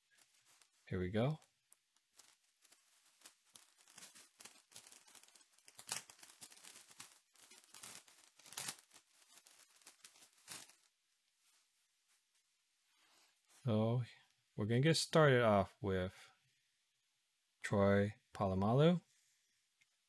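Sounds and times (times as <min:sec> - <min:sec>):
foil wrapper crinkling: 0:00.0 - 0:10.9
foil wrapper ripping: 0:02.1 - 0:10.9.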